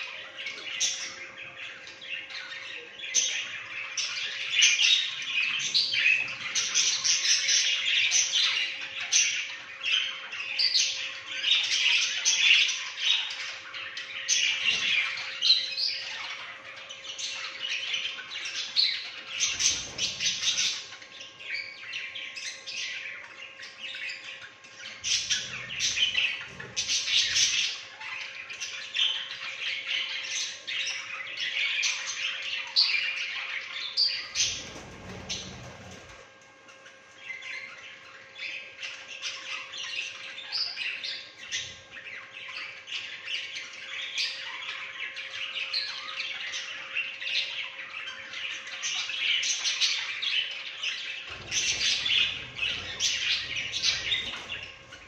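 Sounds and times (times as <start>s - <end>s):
faint steady hum: 0.0s - 55.0s
budgerigars chattering: 11.6s - 55.0s.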